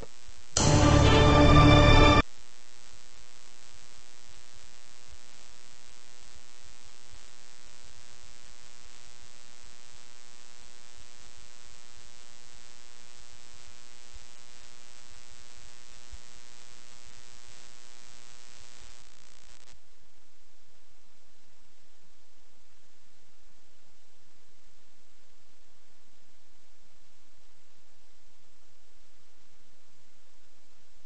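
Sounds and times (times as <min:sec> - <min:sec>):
faint static: 0:00.0 - 0:31.0
loud burst of programme audio: 0:00.6 - 0:02.2.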